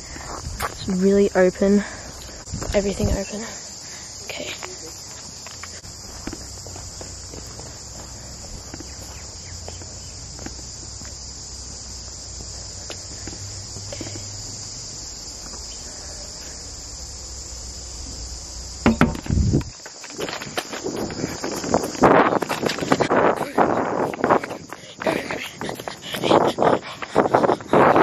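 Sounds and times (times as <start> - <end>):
shrill insect drone: 0.0 - 28.0
knocks on glass door panel: 18.8 - 19.3.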